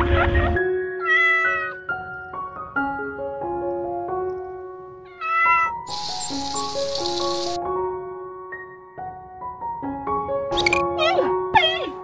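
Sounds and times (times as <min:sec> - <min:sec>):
piano playing simple melody: 0:00.6 - 0:12.0
cat meowing: 0:01.0 - 0:01.9, 0:05.1 - 0:06.0.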